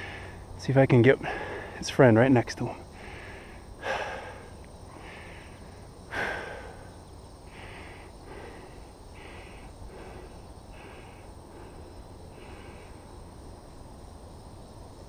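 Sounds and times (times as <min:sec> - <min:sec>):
man breathing out hard: 0:00.0 - 0:00.5, 0:01.2 - 0:01.8, 0:02.9 - 0:13.2
faint hiss: 0:00.0 - 0:15.0.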